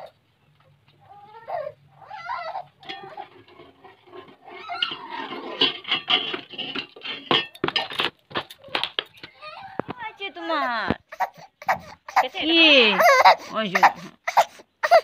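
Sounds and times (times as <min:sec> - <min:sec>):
small child crying: 0:01.1 - 0:02.8, 0:09.4 - 0:10.0, 0:11.0 - 0:15.0.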